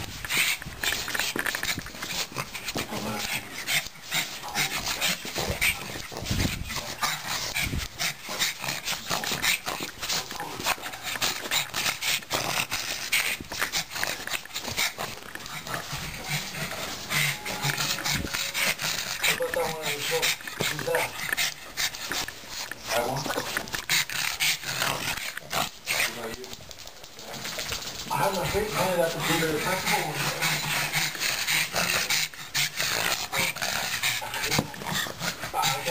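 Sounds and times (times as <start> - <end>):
dog vocalising: 0.2 - 26.4, 27.2 - 35.9.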